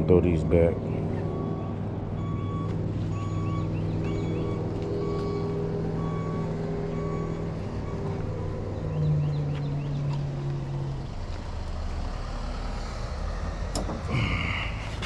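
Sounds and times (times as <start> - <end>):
engine running steadily: 0.0 - 12.2, 13.4 - 15.0
short beeps: 1.2 - 8.1
bird chirps: 3.2 - 5.6, 7.2 - 10.4.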